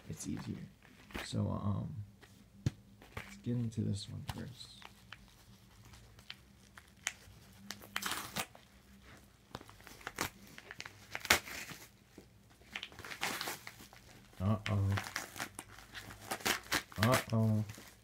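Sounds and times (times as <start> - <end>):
packaging crinkling and tearing: 4.8 - 12.0, 12.6 - 18.0.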